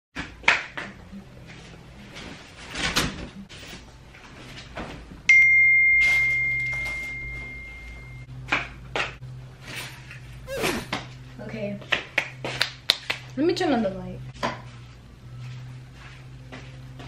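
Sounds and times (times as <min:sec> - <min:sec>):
bell-like ding: 0:05.3 - 0:08.3.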